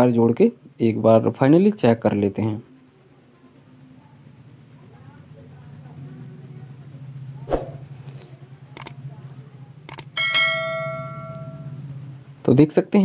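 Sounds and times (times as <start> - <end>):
cricket chirping trill: 0.0 - 13.0
low steady hum: 6.3 - 12.4.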